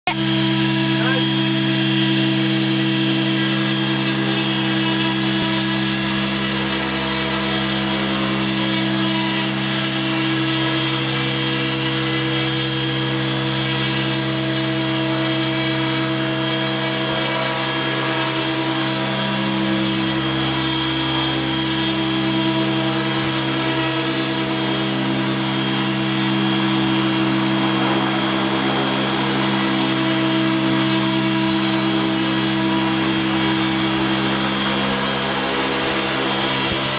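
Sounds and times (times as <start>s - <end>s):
model helicopter whine: 0.1s - 36.9s.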